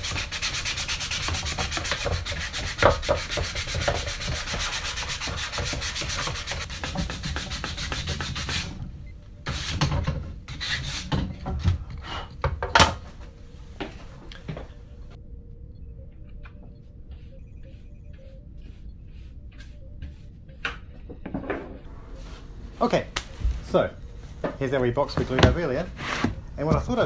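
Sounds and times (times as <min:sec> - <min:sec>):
sandpaper rubbing wood: 0:00.0 - 0:08.7, 0:10.5 - 0:11.2.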